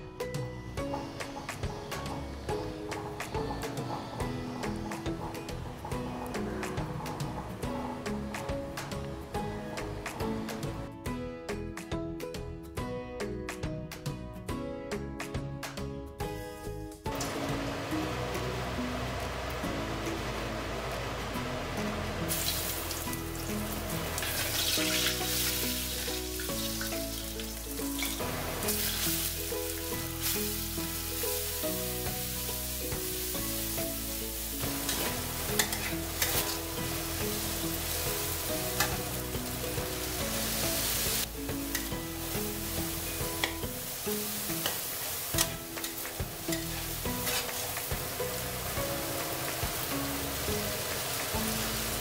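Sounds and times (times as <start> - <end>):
background music with bass: 0.0 - 52.0
food sizzling in hot oil: 17.1 - 52.0
metal spatula scraping a pan: 34.8 - 36.8, 45.4 - 47.8.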